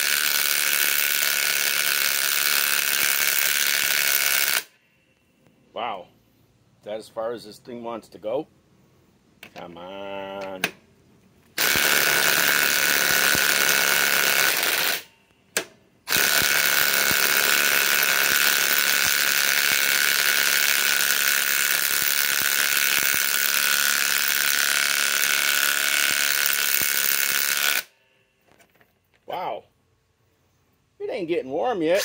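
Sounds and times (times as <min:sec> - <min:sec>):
impact wrench hammering: 0:11.6 - 0:27.9.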